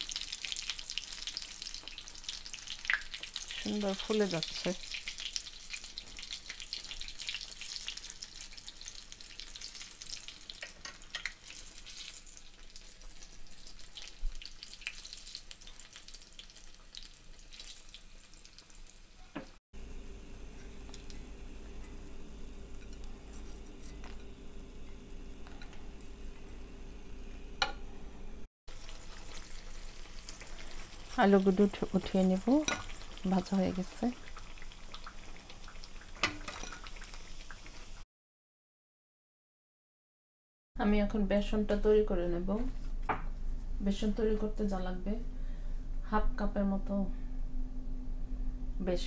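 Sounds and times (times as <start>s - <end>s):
potato slices deep-frying in oil: 0.0s - 27.7s, 28.7s - 38.0s
steady low hum: 19.8s - 28.5s, 41.1s - 49.0s.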